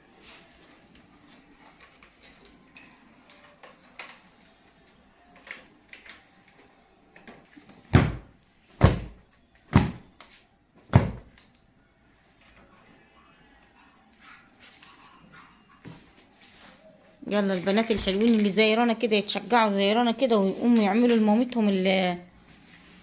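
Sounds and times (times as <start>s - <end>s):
heavy thumps: 7.9s - 10.1s.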